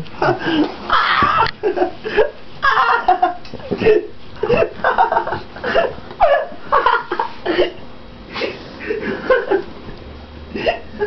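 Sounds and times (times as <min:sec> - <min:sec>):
person laughing: 0:00.2 - 0:09.7, 0:10.5 - 0:11.0.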